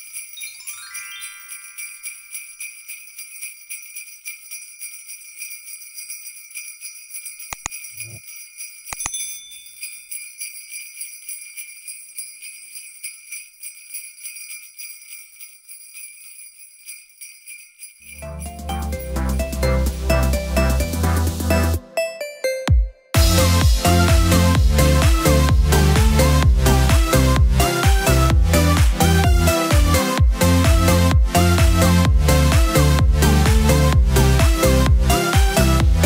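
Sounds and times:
jingle bells shaking: 0:00.0 - 0:22.6, 0:23.2 - 0:36.0
rising run of chimes: 0:00.3 - 0:03.1
sharp clicks: 0:07.5 - 0:07.8.

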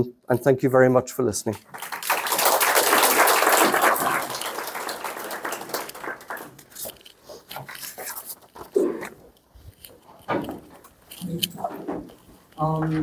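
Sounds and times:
audience applause: 0:01.7 - 0:06.8.

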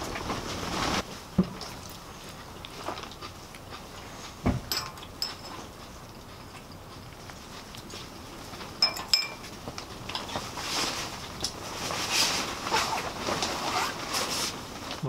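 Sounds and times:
metal fork clinking on ceramic dish: 0:04.7 - 0:05.6, 0:08.8 - 0:09.4.

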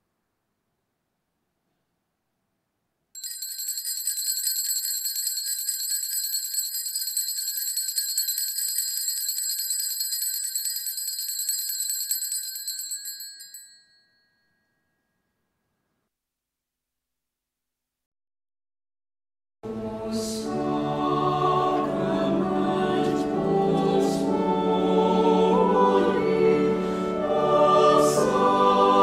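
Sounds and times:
altar bells jingling: 0:03.2 - 0:14.4.

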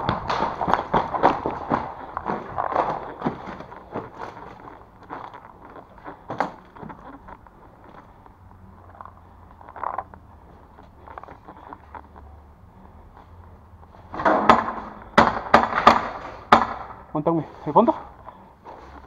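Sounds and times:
footsteps crunching on rubble: 0:00.0 - 0:16.4
knocks: 0:14.2 - 0:16.9.

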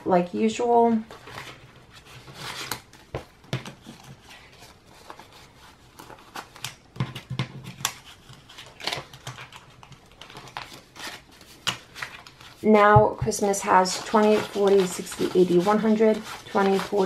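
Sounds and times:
banknotes rustling and flicking: 0:00.9 - 0:17.0.

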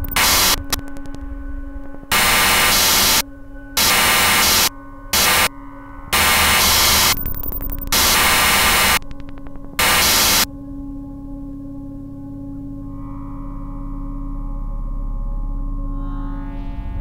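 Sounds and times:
harsh static: 0:00.0 - 0:01.2, 0:02.1 - 0:05.5, 0:06.1 - 0:10.5
rapid clicks: 0:00.0 - 0:01.3, 0:06.2 - 0:10.5
electrical hum: 0:00.0 - 0:17.0.

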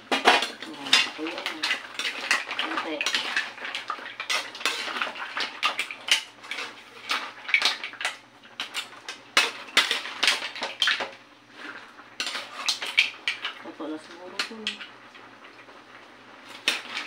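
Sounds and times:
spatula scraping metal pan: 0:00.3 - 0:07.1, 0:12.2 - 0:12.8.

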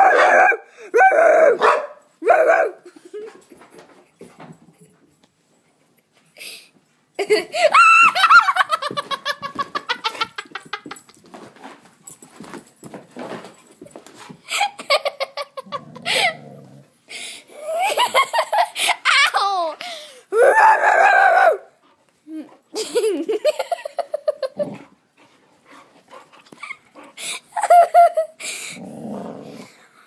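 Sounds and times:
girl giggling: 0:07.2 - 0:11.2, 0:14.5 - 0:16.4, 0:17.5 - 0:19.8, 0:22.3 - 0:24.8, 0:26.6 - 0:28.4.

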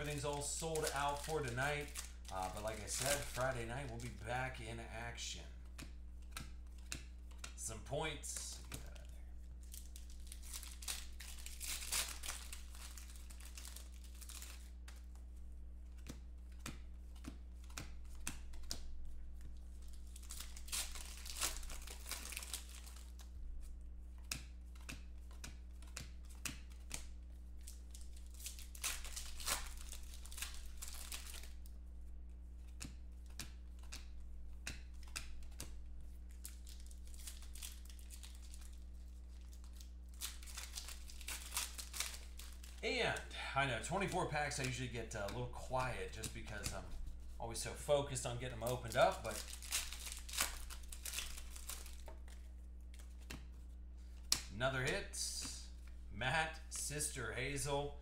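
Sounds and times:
foil wrappers tearing and crinkling: 0:00.0 - 0:04.2, 0:08.8 - 0:14.8, 0:19.8 - 0:23.3, 0:27.6 - 0:31.7, 0:36.3 - 0:43.3, 0:48.1 - 0:53.1
steady low hum: 0:00.0 - 0:58.0
cards clicking when handled: 0:05.7 - 0:07.6, 0:15.9 - 0:19.0, 0:24.2 - 0:31.5, 0:32.6 - 0:38.6, 0:44.0 - 0:47.1, 0:48.2 - 0:56.0.

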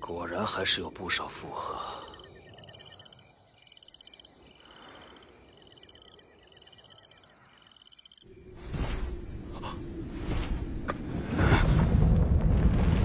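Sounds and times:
crickets chirping: 0:00.0 - 0:13.0
low rumble: 0:09.0 - 0:13.0.

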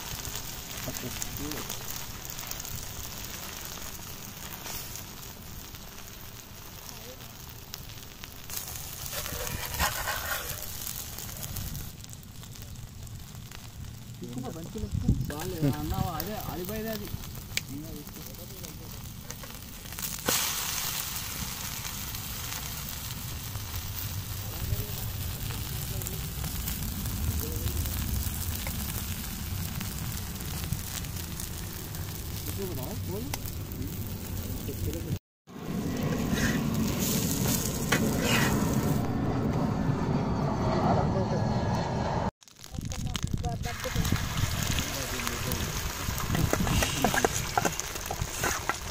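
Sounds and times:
omelette sizzling on griddle: 0:00.0 - 0:39.0, 0:42.4 - 0:48.9
fire crackling: 0:00.0 - 0:40.8, 0:42.0 - 0:48.9
low rumble: 0:22.7 - 0:46.8.

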